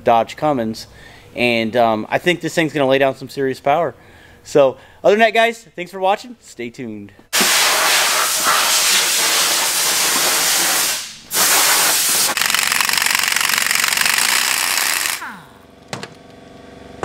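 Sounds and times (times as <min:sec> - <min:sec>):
air impact wrench hammering: 0:07.3 - 0:15.4
air hiss: 0:07.4 - 0:12.4.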